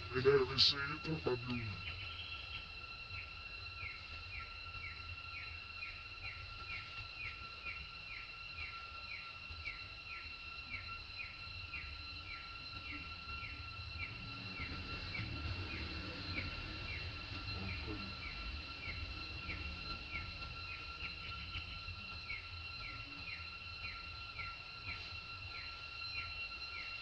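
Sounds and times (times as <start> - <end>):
steady high whine: 0.0 - 27.0
low rumble: 11.4 - 24.9.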